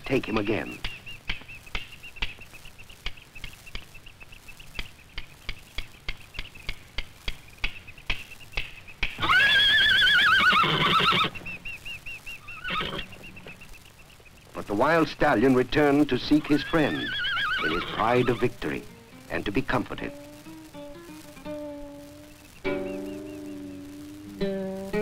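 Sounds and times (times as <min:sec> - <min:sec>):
sharp clicks: 0:00.1 - 0:09.3
horse neighing: 0:09.2 - 0:11.4, 0:12.6 - 0:13.1, 0:16.5 - 0:18.5.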